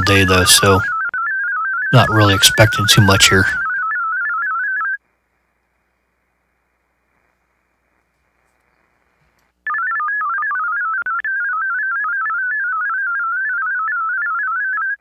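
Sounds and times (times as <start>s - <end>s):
warbling data tone: 0.0s - 5.0s
faint receiver hiss: 5.0s - 9.6s.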